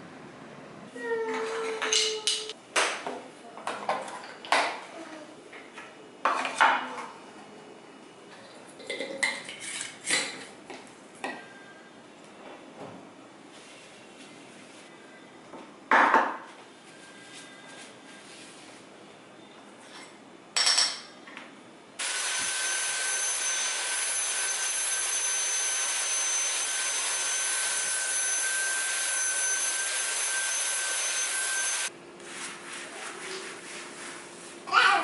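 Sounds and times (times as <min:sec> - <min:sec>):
handheld vacuum whining: 0:22.0 - 0:31.9.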